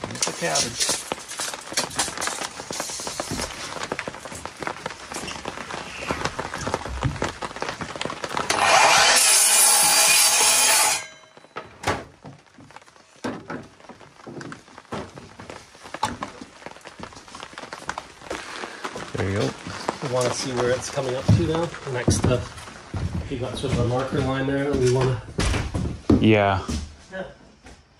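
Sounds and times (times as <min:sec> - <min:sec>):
miter saw cutting wood: 0:08.5 - 0:11.0.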